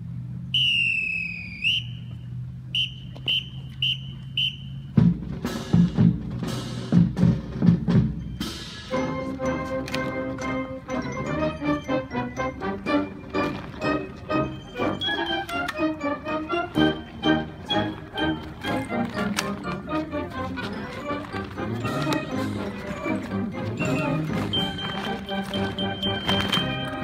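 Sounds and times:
whistle blasts: 0.5s - 5.0s
marching band playing: 2.8s - 27.0s
heavy drum strokes: 4.9s - 9.0s.

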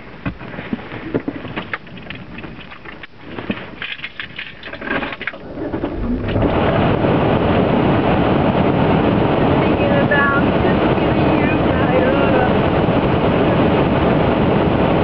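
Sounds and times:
clicks and rustling in car: 0.0s - 6.4s.

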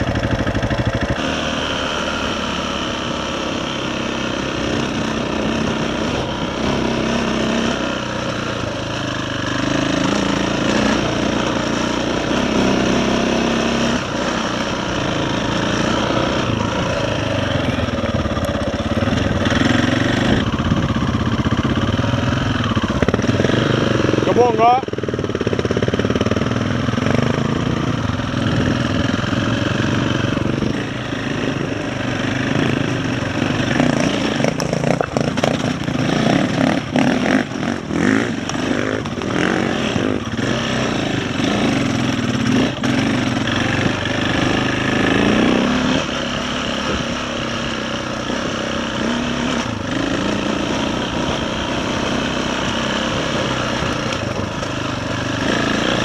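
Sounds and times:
dirt bike engine revving: 0.0s - 56.0s
knocks and rattles over rocks: 34.4s - 36.0s.

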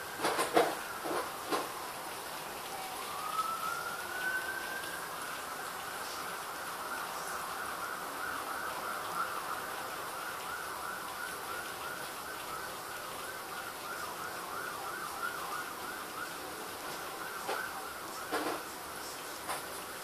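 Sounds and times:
siren wailing in fast yelp: 2.6s - 5.6s, 6.7s - 18.3s.

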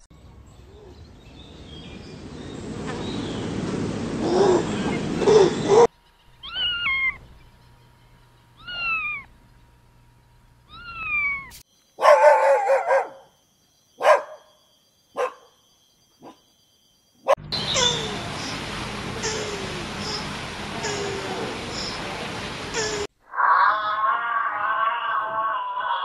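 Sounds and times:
dog barking: 4.4s - 5.9s, 12.0s - 13.3s, 14.0s - 14.5s, 15.2s - 15.6s, 16.2s - 16.4s
cat meowing: 6.4s - 7.2s, 8.6s - 9.3s, 10.7s - 11.6s, 23.4s - 26.0s.

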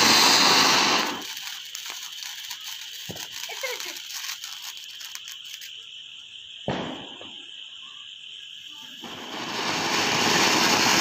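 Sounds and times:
firecracker bang: 0.0s - 1.4s, 6.6s - 7.6s, 9.0s - 11.0s
firework spraying sparks hiss: 0.0s - 11.0s.

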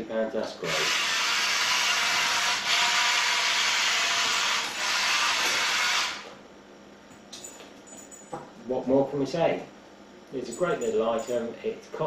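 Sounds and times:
toy truck electric motor whirring: 0.7s - 6.3s.

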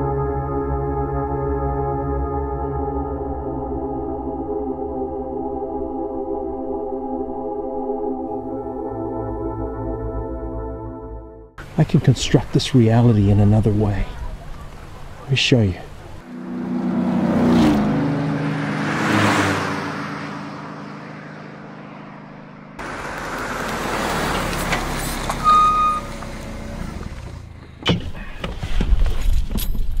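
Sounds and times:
vehicle engine passing: 11.6s - 27.8s.

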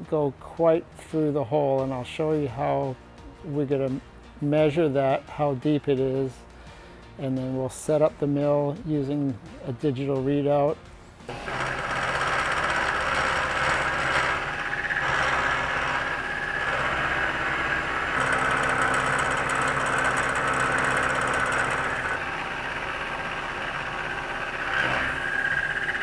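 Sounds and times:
milling machine hum: 11.3s - 26.0s
scratchy metal cutting: 11.3s - 26.0s.

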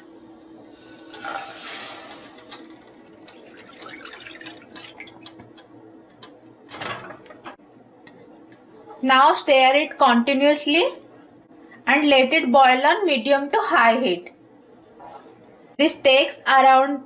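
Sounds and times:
milk pouring into a pan: 3.1s - 5.2s
drips and ticks: 3.2s - 6.3s.

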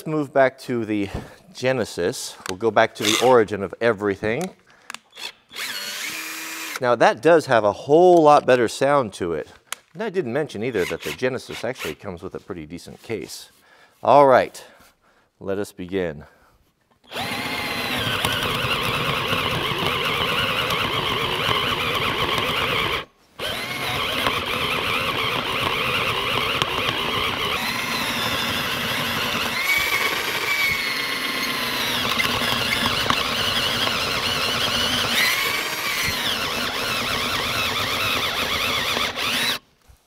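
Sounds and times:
cordless drill boring into wood: 3.0s - 3.4s, 5.1s - 6.8s, 10.7s - 12.0s, 17.1s - 39.6s.

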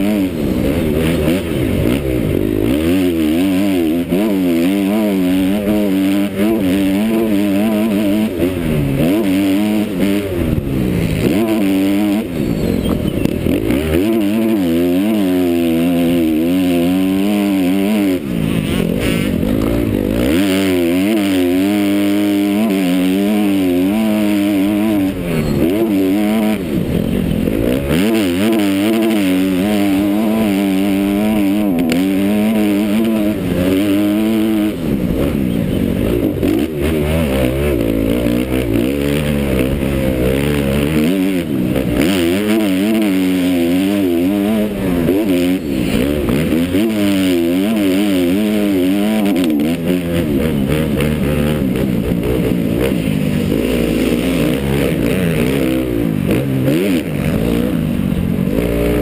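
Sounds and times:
motocross engine revving: 0.0s - 59.0s.

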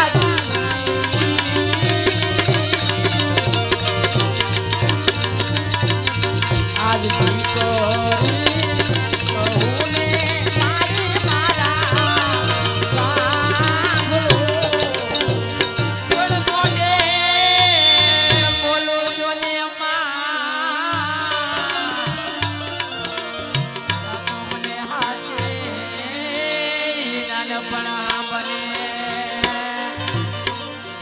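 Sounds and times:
hand drum rhythm: 0.0s - 18.7s
jingling percussion: 0.0s - 19.9s, 20.9s - 31.0s
ornamented melody line: 0.0s - 31.0s.

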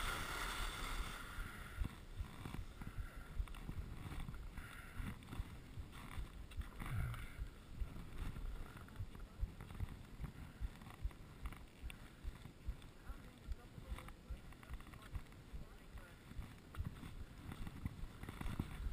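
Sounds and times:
skis scraping on snow: 0.0s - 6.8s, 7.8s - 18.9s
wind rumble on microphone: 0.0s - 18.9s.

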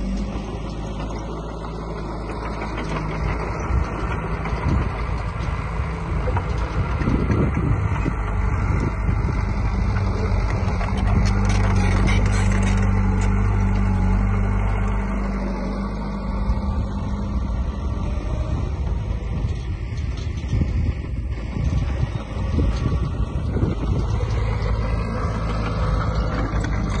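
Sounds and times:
bulldozer diesel engine running: 0.0s - 27.0s
metal clanks and rattles: 0.1s - 8.1s, 9.8s - 13.9s, 18.9s - 27.0s.

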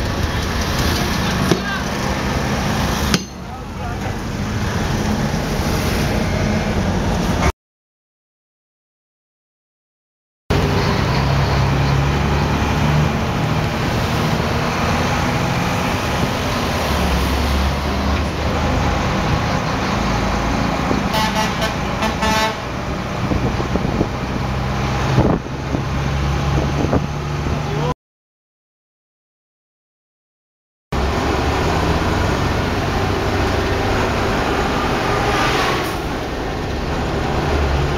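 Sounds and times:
engine hum and road rumble: 0.0s - 7.5s, 10.5s - 28.0s, 31.0s - 37.9s
vehicle horn honking: 21.1s - 22.6s.

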